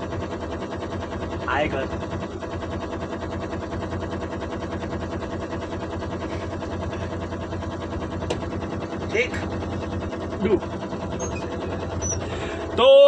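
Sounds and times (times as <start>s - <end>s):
truck diesel engine clattering: 0.0s - 13.0s.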